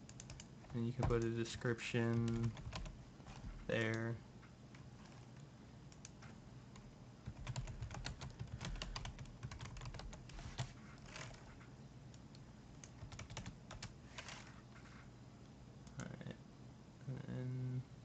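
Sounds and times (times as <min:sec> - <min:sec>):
typing on computer keyboard: 0:00.0 - 0:01.3, 0:02.0 - 0:03.4, 0:07.3 - 0:11.4, 0:12.8 - 0:14.4.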